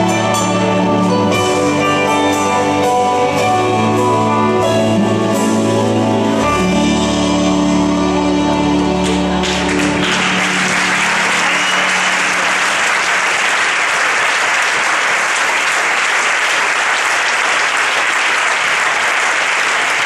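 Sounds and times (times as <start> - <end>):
audience applauding: 9.0 - 20.0.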